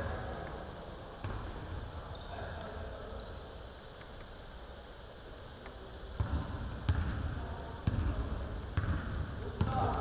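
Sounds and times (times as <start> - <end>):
sneaker squeaks: 2.0 - 5.0.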